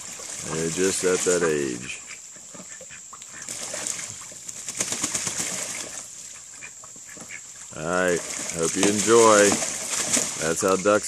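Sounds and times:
ducks splashing in water: 0:00.0 - 0:11.0
wings flapping: 0:03.4 - 0:06.1, 0:08.1 - 0:10.8.

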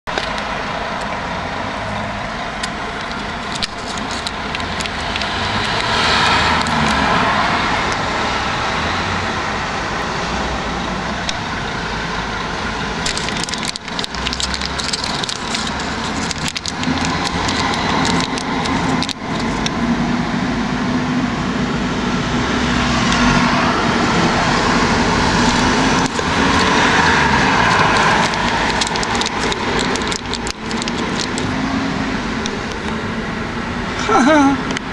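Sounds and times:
street traffic noise: 0:00.0 - 0:34.9
foil packets crinkling: 0:02.6 - 0:07.0, 0:13.0 - 0:19.7, 0:25.3 - 0:31.6.

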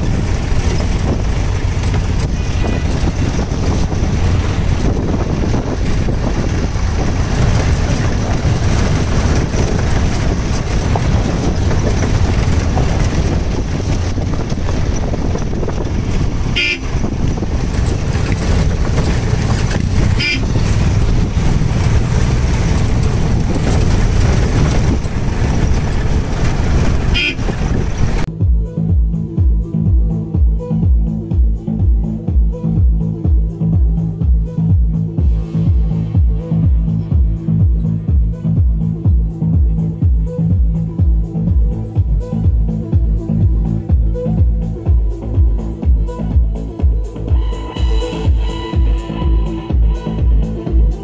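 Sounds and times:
motorcycle engine running: 0:00.0 - 0:51.0
wind rumble: 0:00.0 - 0:51.0
short horn toot: 0:16.6 - 0:17.0, 0:20.2 - 0:20.6, 0:27.1 - 0:27.5.

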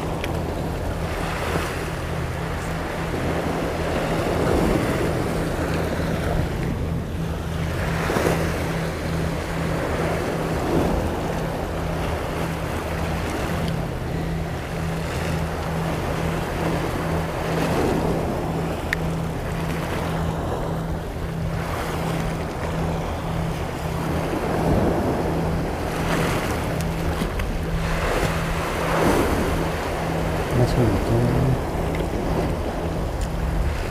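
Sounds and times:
waves washing against rocks: 0:00.0 - 0:01.9, 0:02.6 - 0:06.9, 0:24.0 - 0:33.9
steady low hum: 0:00.0 - 0:33.9
wind on microphone: 0:00.0 - 0:33.9.

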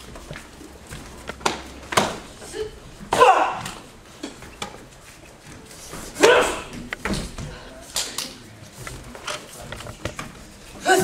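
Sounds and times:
person shouting: 0:02.6 - 0:03.8.

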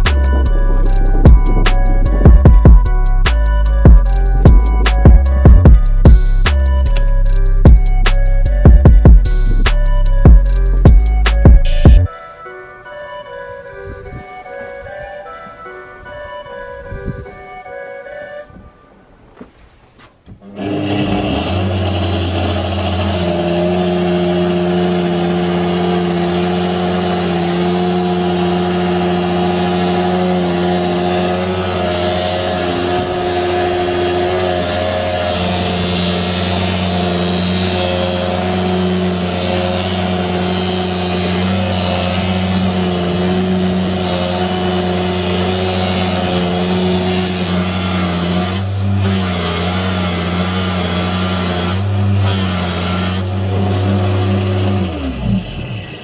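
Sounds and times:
sander motor humming: 0:20.4 - 0:56.0
board sanded against drum: 0:20.6 - 0:54.4.

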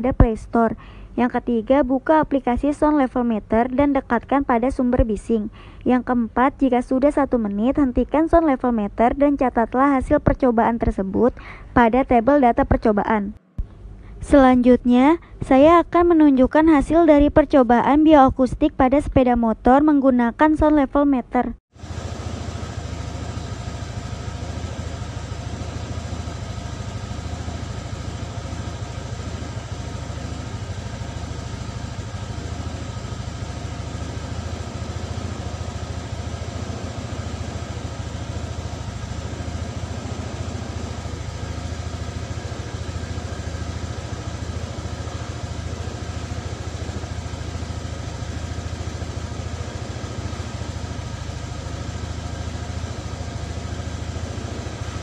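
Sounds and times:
motorcycle engine idling: 0:21.7 - 0:55.0.

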